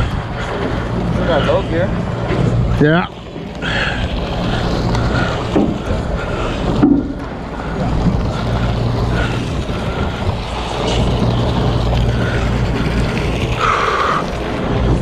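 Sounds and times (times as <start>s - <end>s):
boat engine humming: 0.0s - 15.0s
water noise: 0.0s - 15.0s
wind on microphone: 0.0s - 15.0s.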